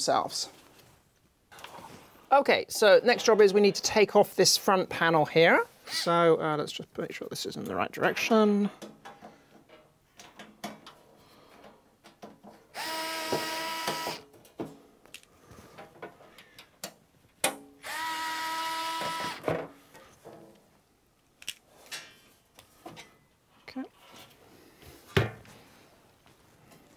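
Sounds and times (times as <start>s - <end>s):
cordless screwdriver motor whine: 12.8s - 14.2s, 17.8s - 19.4s.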